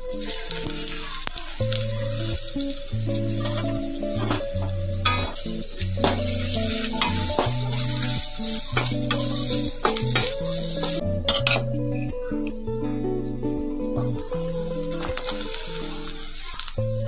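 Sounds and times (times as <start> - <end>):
background music with held notes: 0.0 - 17.0
food sizzling: 0.0 - 17.0
spoon scraping metal pan: 3.4 - 11.7.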